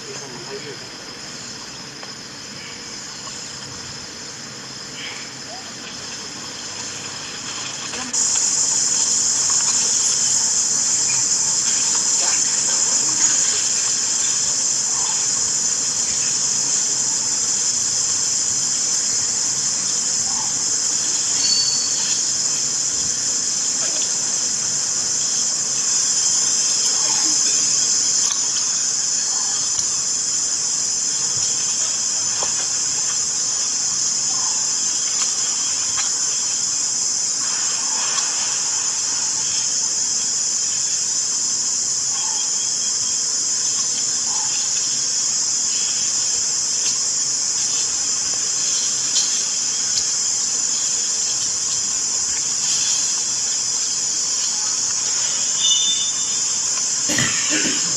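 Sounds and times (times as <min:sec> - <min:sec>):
high-pitched hiss: 0:00.0 - 0:57.9
faint short chirps: 0:21.4 - 0:22.0, 0:55.6 - 0:56.3.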